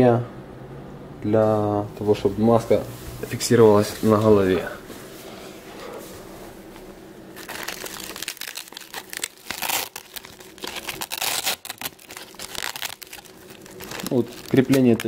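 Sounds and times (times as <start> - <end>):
velcro strap ripping: 7.4 - 15.0.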